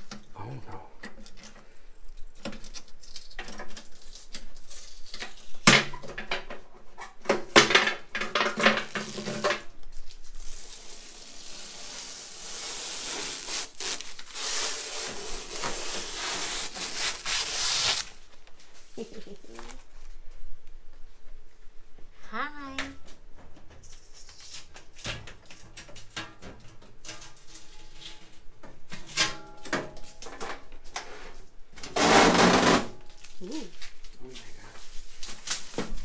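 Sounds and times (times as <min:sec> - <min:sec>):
plastic film peeling: 0:01.3 - 0:05.7, 0:08.8 - 0:18.6, 0:23.9 - 0:25.6, 0:33.0 - 0:36.0.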